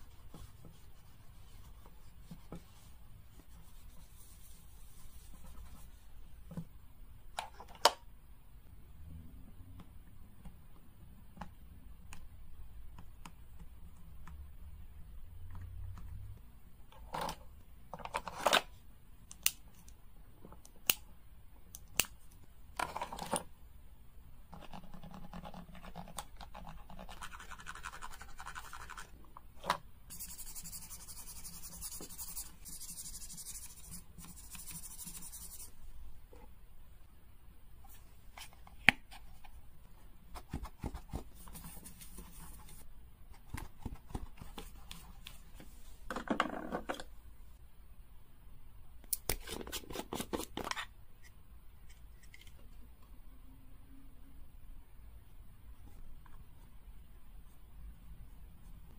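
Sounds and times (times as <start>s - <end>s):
nail file scratching plastic: 24.6s - 29.1s.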